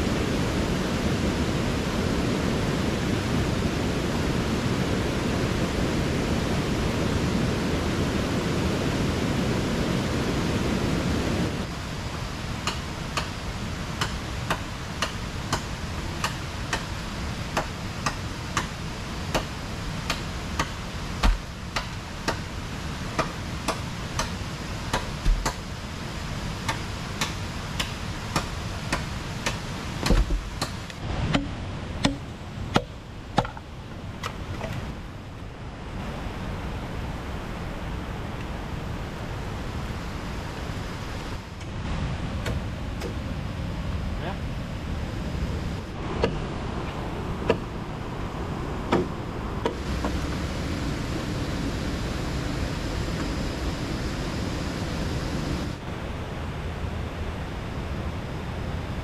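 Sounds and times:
rainforest ambience: 0.0 - 59.0
rushing water: 0.0 - 59.0
wood thumping: 30.0 - 33.6.

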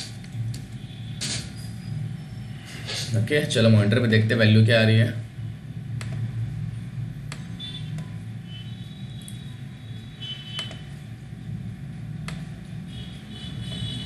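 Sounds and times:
computer mouse clicks: 6.0 - 6.2, 10.5 - 10.9, 12.2 - 12.5.

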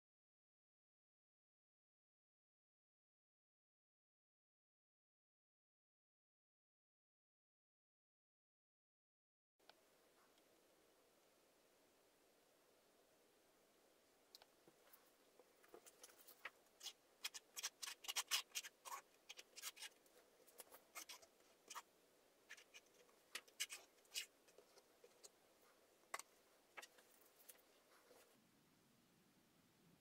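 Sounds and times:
plastic spatula scraping canvas: 15.7 - 21.9, 22.5 - 25.4.

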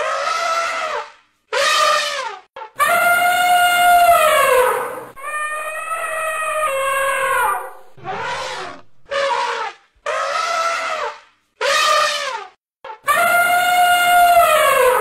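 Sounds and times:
elephants trumpeting: 4.2 - 12.5.

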